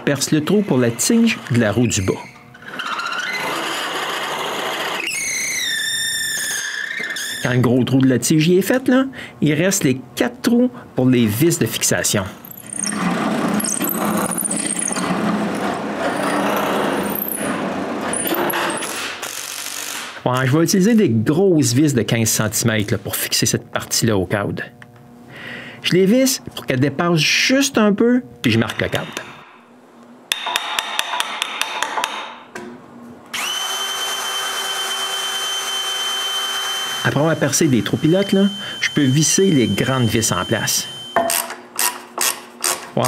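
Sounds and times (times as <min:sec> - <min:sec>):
drill press boring into wood: 0:02.6 - 0:07.5, 0:12.5 - 0:20.2, 0:33.4 - 0:42.8
cordless drill driving a screw: 0:12.5 - 0:15.1, 0:18.1 - 0:20.1, 0:33.4 - 0:38.4
cordless drill whining: 0:33.4 - 0:41.2.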